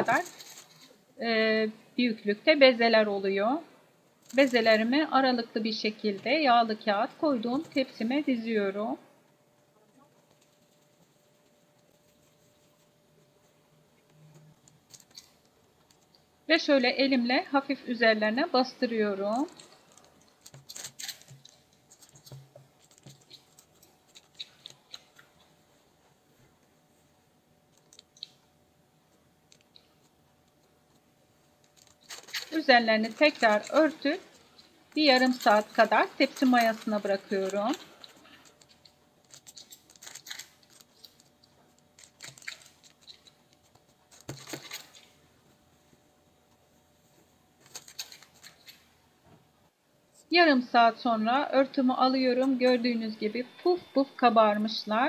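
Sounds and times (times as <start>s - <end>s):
paper rustling: 0.0s - 1.0s, 31.6s - 45.2s, 47.1s - 48.8s
rustling and scratching on paper: 0.0s - 1.0s, 9.8s - 16.2s, 19.3s - 28.4s, 29.4s - 48.9s.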